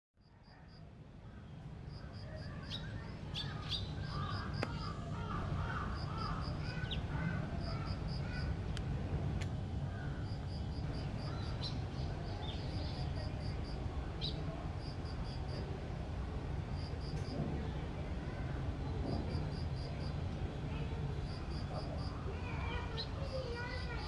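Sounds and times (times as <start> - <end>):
bird chirping: 1.9 - 8.4, 10.0 - 13.3
wavering bird calls: 2.0 - 8.6.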